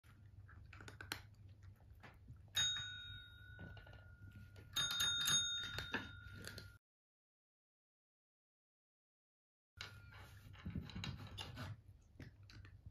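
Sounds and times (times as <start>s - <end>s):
taps and clicks on bells: 2.6s - 6.8s.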